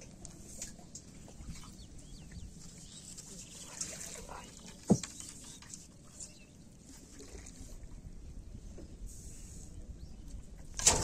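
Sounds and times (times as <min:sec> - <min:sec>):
faint trickling water: 0:00.0 - 0:08.8
low wind rumble: 0:07.5 - 0:11.0.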